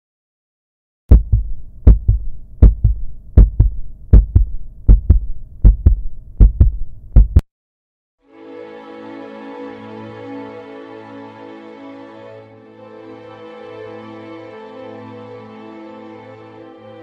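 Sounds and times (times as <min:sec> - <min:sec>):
heartbeat thumps: 0:01.1 - 0:07.4
soft music: 0:08.2 - 0:17.0.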